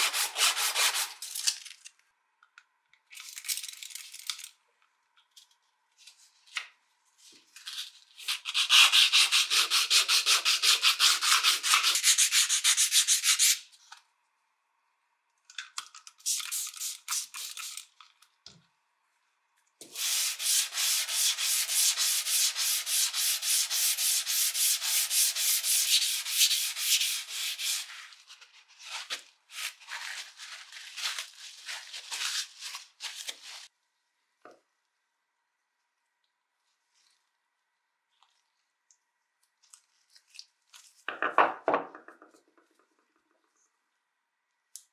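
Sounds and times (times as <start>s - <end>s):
sandpaper rubbing on metal: 0.0s - 1.2s, 8.3s - 13.7s, 19.9s - 28.2s.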